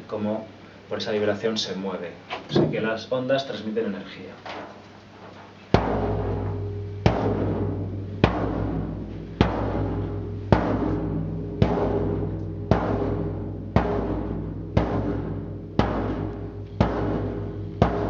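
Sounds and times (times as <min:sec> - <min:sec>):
drum head vibrating in sympathy: 0:05.7 - 0:18.0
frame drum booming: 0:05.7 - 0:18.0.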